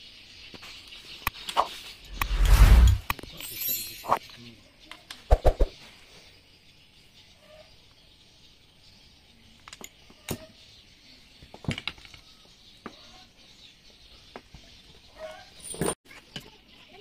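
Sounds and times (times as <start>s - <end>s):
metal tools clinking: 2.8s - 4.4s, 15.6s - 16.0s.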